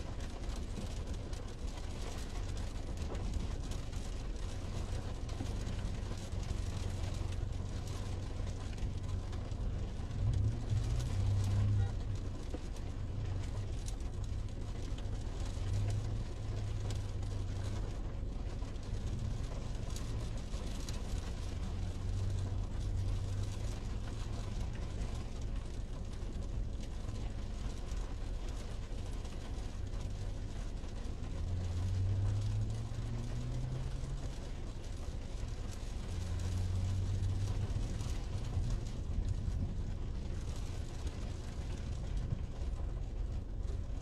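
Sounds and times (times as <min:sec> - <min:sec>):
heavy rain drumming on car roof: 0:00.0 - 0:44.0.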